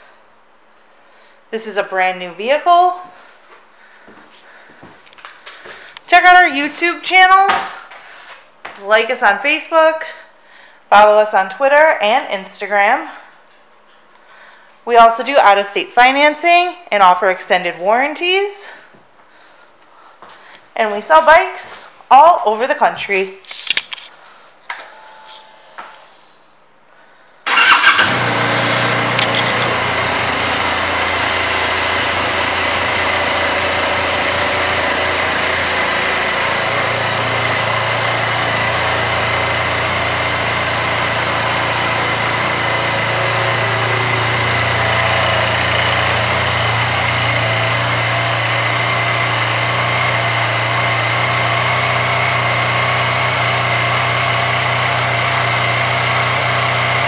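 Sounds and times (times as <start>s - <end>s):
motorcycle engine idling: 27.5s - 57.0s.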